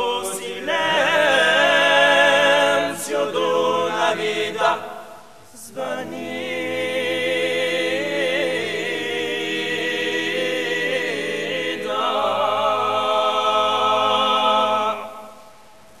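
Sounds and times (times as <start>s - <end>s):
male a cappella choir singing: 0.0s - 15.4s.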